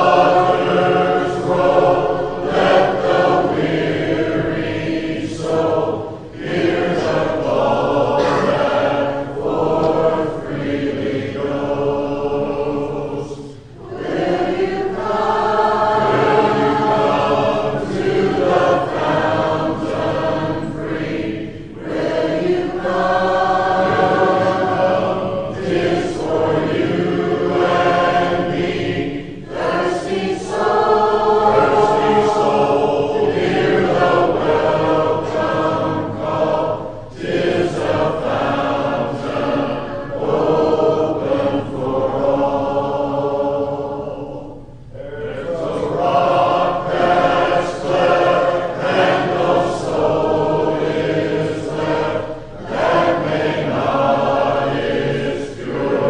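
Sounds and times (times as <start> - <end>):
congregation singing a hymn: 0.0 - 56.0.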